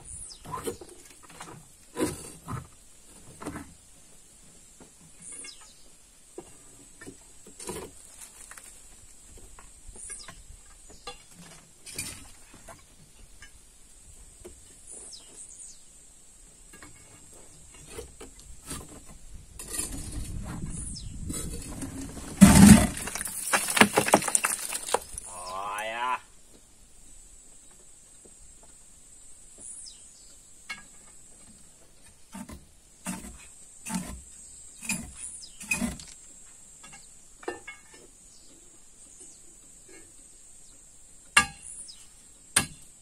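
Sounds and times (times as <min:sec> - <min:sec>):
loose stone rattling: 0:16.7 - 0:25.6
tools clinking on rock: 0:22.8 - 0:25.3.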